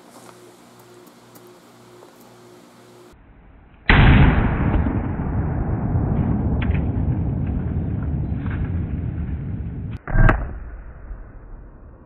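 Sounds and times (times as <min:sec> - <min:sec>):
revolver gunshot with rumble: 0:03.9 - 0:11.9.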